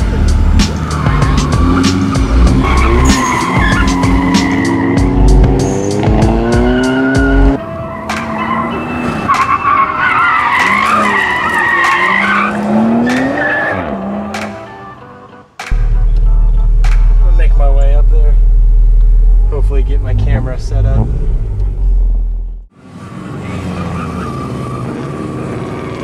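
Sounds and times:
car engines revving: 0.0s - 14.5s, 15.8s - 26.0s
tires squealing: 0.3s - 14.3s, 22.8s - 26.0s.

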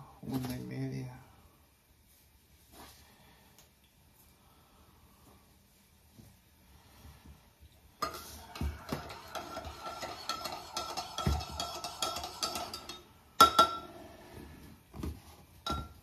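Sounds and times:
mug ringing: 8.9s - 13.9s, 15.6s - 16.0s
spoon clinking in mug: 9.0s - 13.8s.

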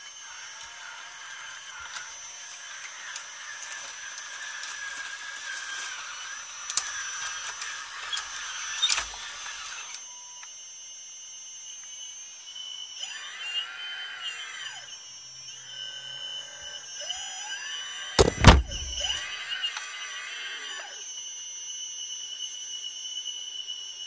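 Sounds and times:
sharp clicks: 18.2s - 19.2s.

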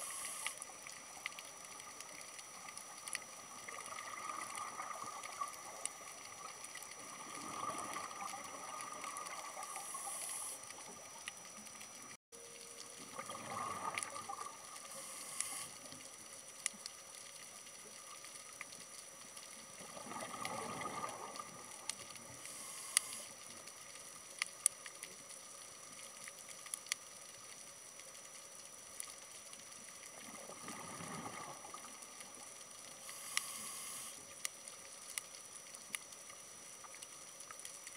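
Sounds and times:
steady background hiss: 0.0s - 37.9s
exhaled bubbles underwater: 0.7s - 11.3s, 12.8s - 15.0s, 19.6s - 22.4s, 30.1s - 32.5s
faint sharp clicks: 15.2s - 19.6s, 21.3s - 30.1s, 32.0s - 37.9s.

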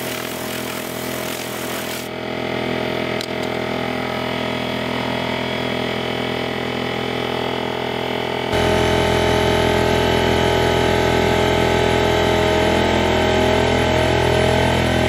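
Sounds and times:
air compressor running: 0.0s - 13.7s.

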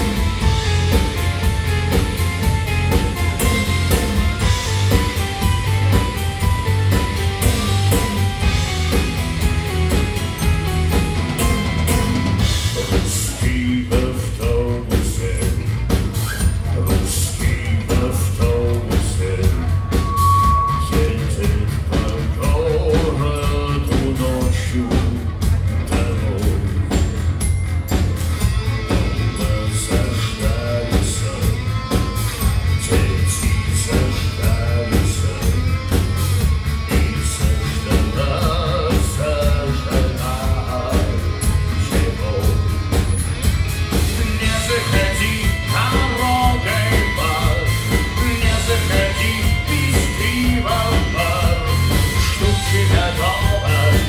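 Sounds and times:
heavy bass line: 0.0s - 54.0s
live rock band playing: 0.0s - 54.0s
steady drum beat: 0.0s - 54.0s
man singing: 10.8s - 27.2s, 28.7s - 43.2s, 43.9s - 54.0s.

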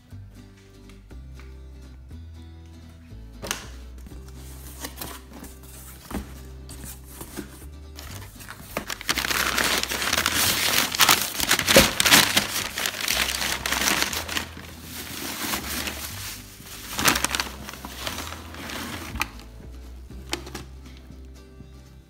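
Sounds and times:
packing paper and plastic crinkling: 4.6s - 19.5s.

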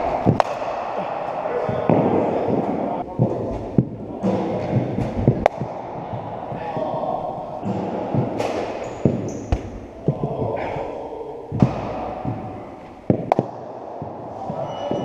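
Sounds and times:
cricket balls bouncing and hit: 11.5s - 14.6s.

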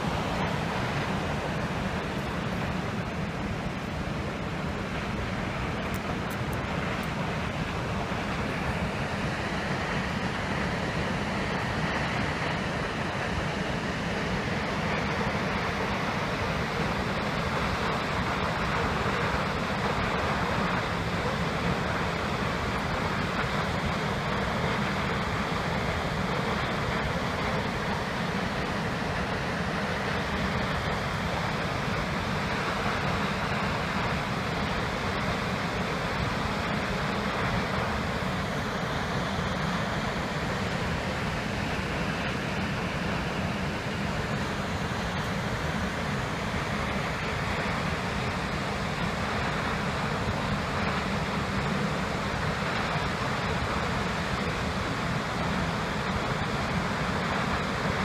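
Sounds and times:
waterfall roaring: 0.0s - 58.0s.

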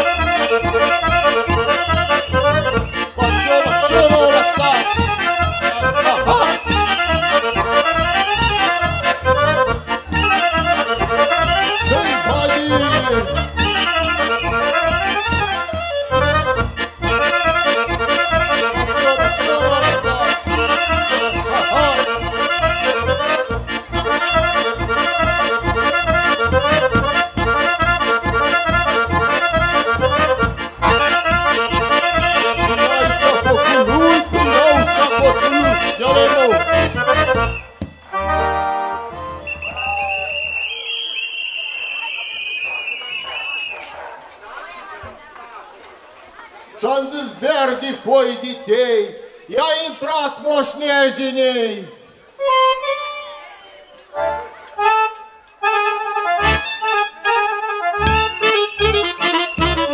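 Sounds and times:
pulsing bass rhythm: 0.0s - 13.9s, 17.9s - 37.5s
accordion playing folk tune: 0.0s - 44.0s, 52.0s - 59.9s.

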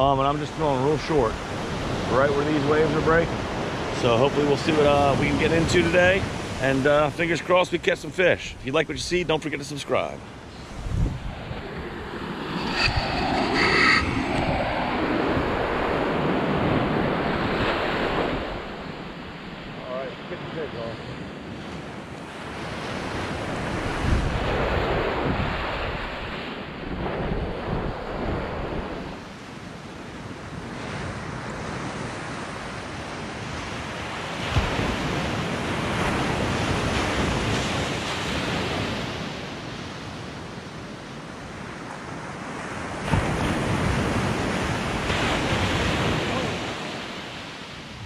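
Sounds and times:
ocean surf washing onto beach: 0.0s - 48.0s
wind noise on microphone: 10.5s - 19.2s, 22.3s - 29.4s, 30.2s - 39.4s, 42.2s - 47.1s.

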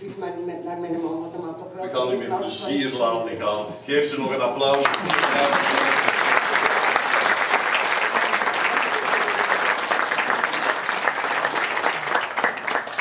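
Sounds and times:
audience applauding: 4.7s - 13.0s.

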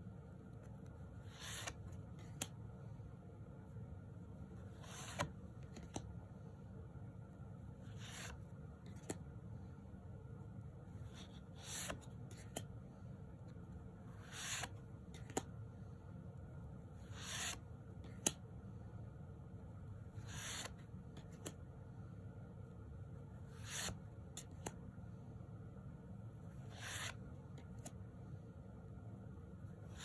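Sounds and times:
papery card swish: 26.6s - 27.2s.

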